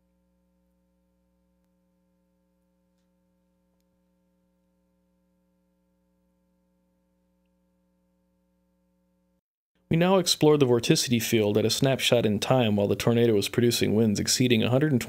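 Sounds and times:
faint steady hum: 0:00.0 - 0:09.9.

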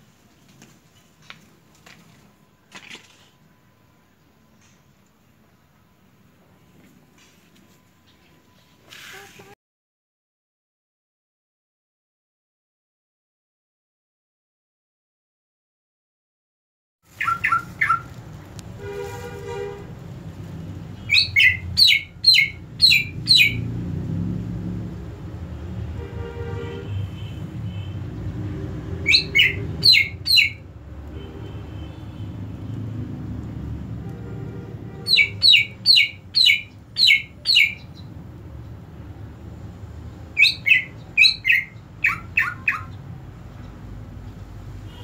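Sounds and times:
bird chirping sharply: 0:17.1 - 0:18.1, 0:21.0 - 0:23.7, 0:29.0 - 0:30.6, 0:35.0 - 0:38.2, 0:40.3 - 0:43.1.

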